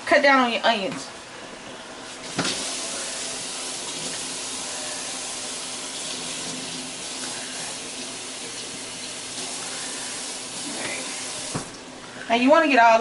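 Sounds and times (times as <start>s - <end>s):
faucet water running into jar: 2.3s - 11.6s.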